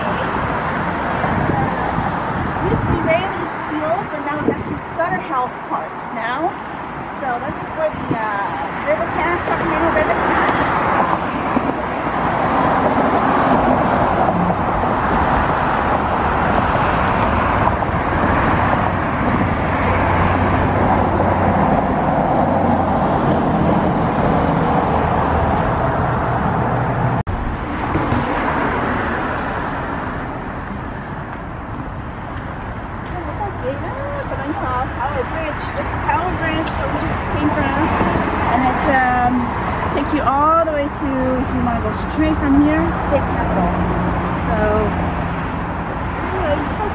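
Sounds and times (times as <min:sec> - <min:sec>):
road traffic passing: 0:00.0 - 0:46.9
low engine drone: 0:12.8 - 0:37.9.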